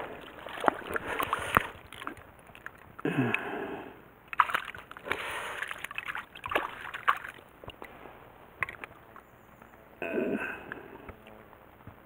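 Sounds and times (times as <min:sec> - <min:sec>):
fish thrashing at water surface: 0:00.0 - 0:03.0, 0:04.3 - 0:07.9
water splashing and sloshing: 0:00.0 - 0:03.5, 0:04.2 - 0:09.3.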